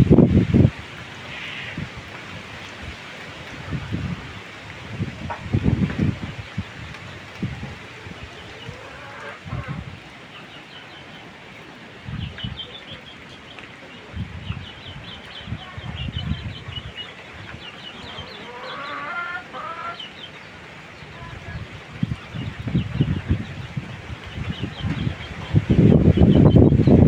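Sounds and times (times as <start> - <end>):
wind rumble on microphone: 0.0 - 10.3, 11.8 - 13.1, 13.7 - 18.8, 21.0 - 27.0
chickens clucking: 5.2 - 13.7, 14.4 - 26.8.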